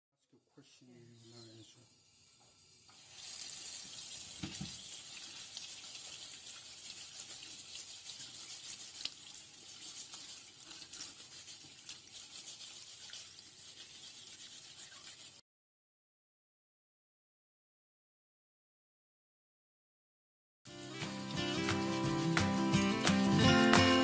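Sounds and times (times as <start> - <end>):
kitchen tap running into sink: 2.0 - 15.4
scouring pad scrubbing potatoes: 3.0 - 15.4.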